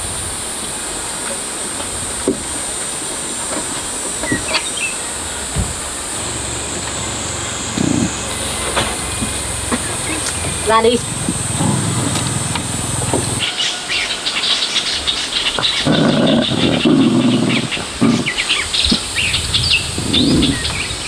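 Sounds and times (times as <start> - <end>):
insects: 0.0 - 21.0
low hum and high hiss: 0.0 - 21.0
small birds chirping: 4.2 - 21.0
irregular low sounds: 6.0 - 13.4.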